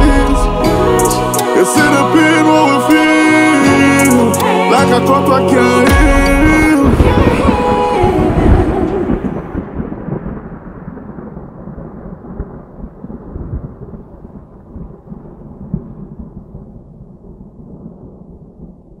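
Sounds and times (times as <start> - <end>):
song: 0.0 - 9.8
rolling thunder: 5.9 - 19.0
rain: 6.8 - 19.0.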